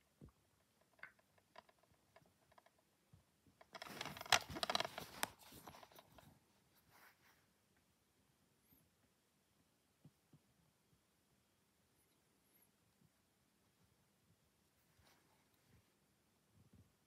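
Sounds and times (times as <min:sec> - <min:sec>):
plastic case scraping and rustling: 0:03.6 - 0:06.3.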